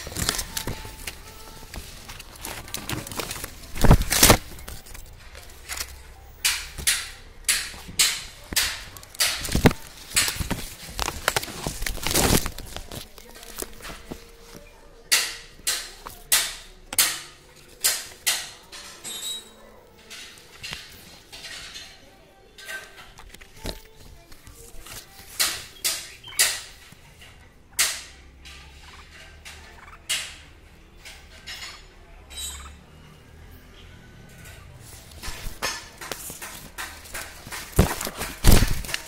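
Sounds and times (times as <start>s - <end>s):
leaves and twigs rustling: 0.0s - 17.0s, 22.6s - 26.9s, 34.4s - 39.0s.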